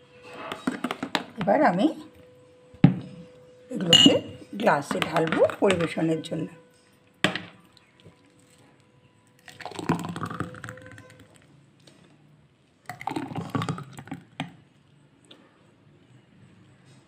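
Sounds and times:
thick liquid pouring into glass: 9.4s - 11.3s, 12.9s - 14.3s.

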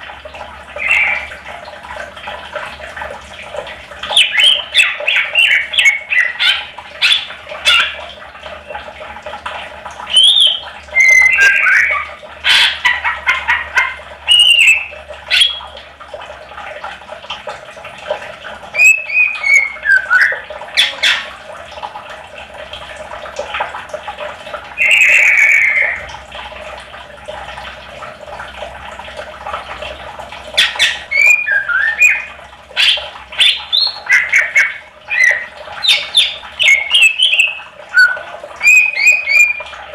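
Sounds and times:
leafbird singing: 14.3s - 15.6s, 18.8s - 21.2s, 32.8s - 39.6s.

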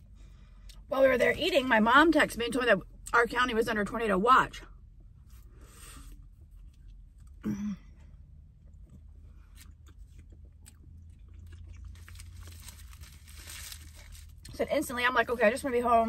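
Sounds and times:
low steady hum: 0.0s - 16.0s
woman chewing: 8.0s - 14.5s.

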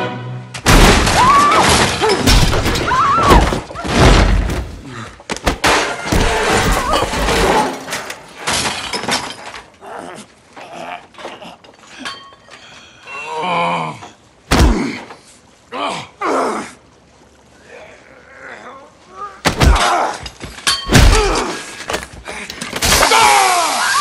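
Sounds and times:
things breaking: 0.6s - 9.8s.

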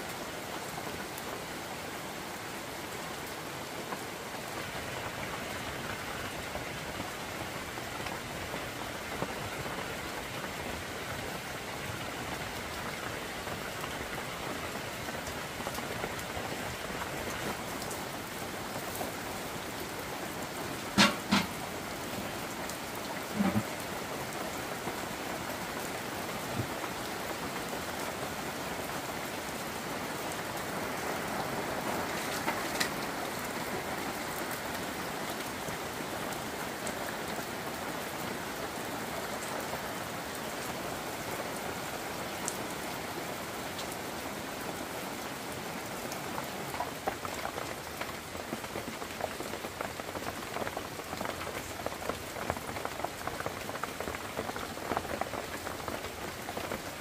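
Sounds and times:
steady rain falling: 0.0s - 57.0s
short sharp knocks: 21.0s - 21.6s.

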